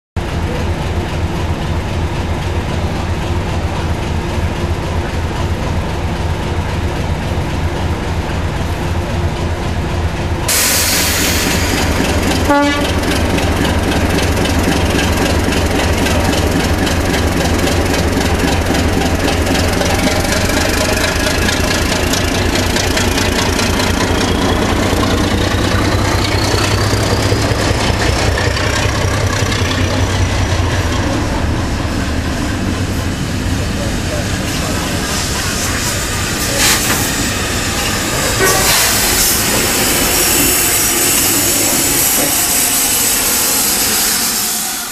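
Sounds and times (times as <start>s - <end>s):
diesel locomotive engine throbbing: 0.2s - 44.9s
loud hiss: 10.5s - 15.9s, 34.3s - 44.9s
rising engine whine: 18.3s - 44.9s.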